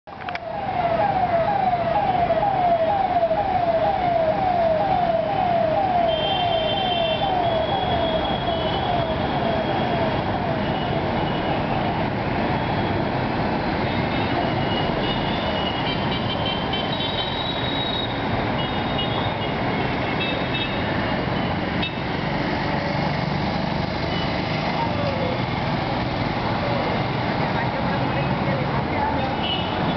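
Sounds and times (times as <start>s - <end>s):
street traffic noise: 0.1s - 29.9s
siren yelping: 0.2s - 13.0s.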